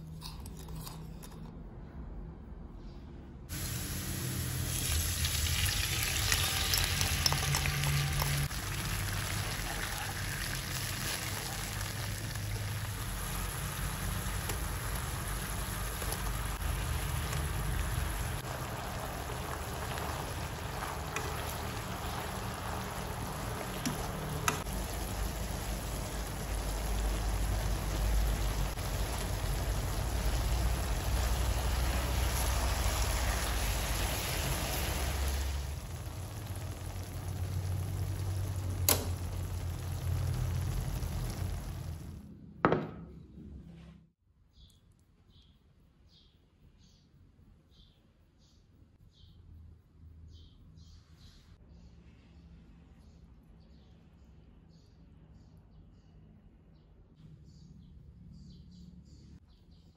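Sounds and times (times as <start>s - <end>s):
eggplant sizzling in a frying pan: 3.5s - 42.2s
utensils stirring: 19.4s - 25.0s.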